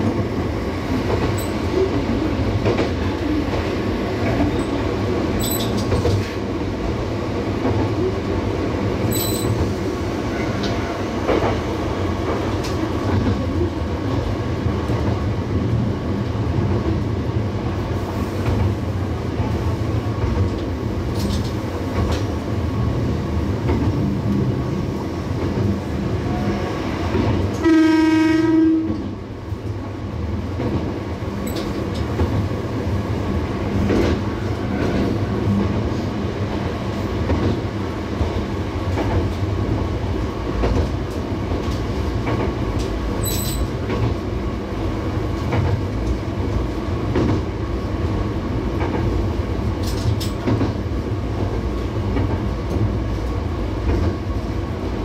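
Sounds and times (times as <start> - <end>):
diesel railcar engine drone: 0.0 - 55.0
wheels clattering on rails: 1.0 - 6.4, 9.0 - 9.9, 30.6 - 32.6, 40.6 - 44.2
train horn blast: 27.6 - 29.1.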